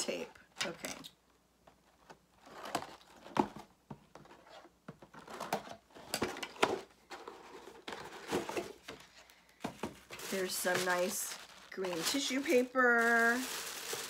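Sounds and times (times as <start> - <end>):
paper crinkling: 7.1 - 14.0.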